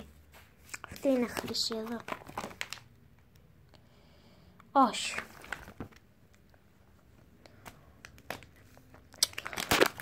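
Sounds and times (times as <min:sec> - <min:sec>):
plastic pockets clicking and crinkling: 0:00.8 - 0:02.9, 0:07.6 - 0:10.0.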